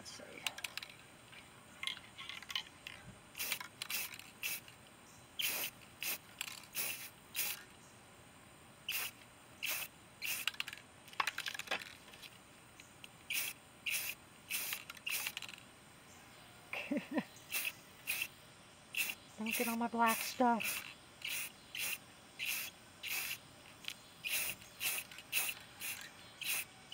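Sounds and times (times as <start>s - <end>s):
spray paint hissing in bursts: 3.3s - 4.7s, 5.4s - 7.7s, 8.9s - 10.8s, 13.3s - 15.6s, 17.5s - 26.9s.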